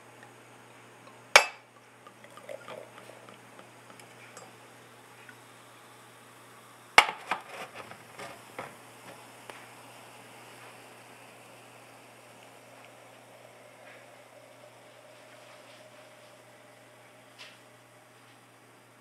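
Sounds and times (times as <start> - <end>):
wine pouring and fizzing: 0.0 - 5.6
glass clink: 1.0 - 4.6.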